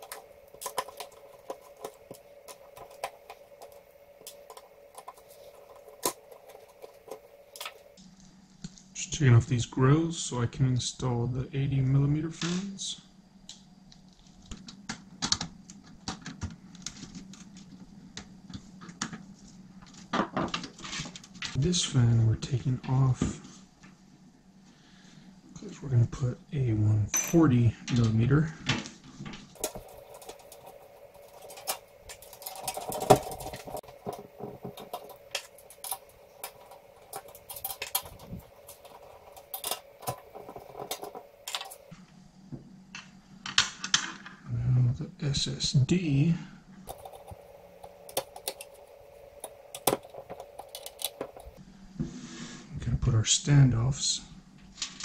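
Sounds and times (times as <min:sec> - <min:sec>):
faint steady hum: 0:00.0 - 0:55.0
screws knocking against metal case: 0:29.6 - 0:41.8, 0:46.9 - 0:51.6.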